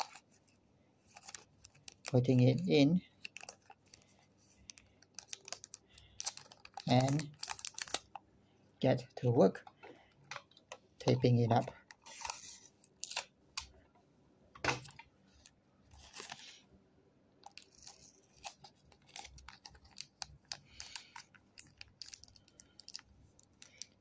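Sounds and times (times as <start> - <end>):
plastic clicking and crinkling: 1.1 - 8.2, 9.5 - 12.4, 17.4 - 24.0.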